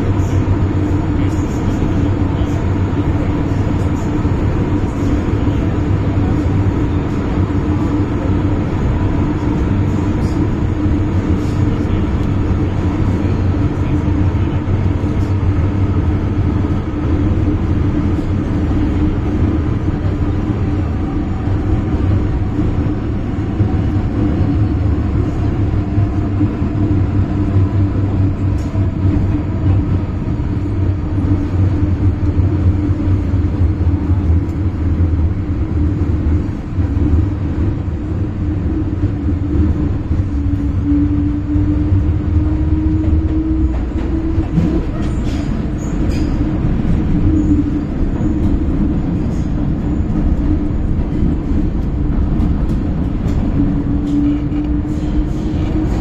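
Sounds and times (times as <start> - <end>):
train wheels rumbling: 0.0 - 56.0.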